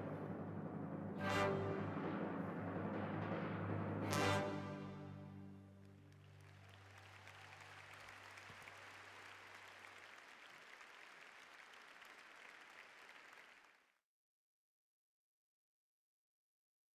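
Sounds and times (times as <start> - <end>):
faint audience applause: 5.7 - 14.0.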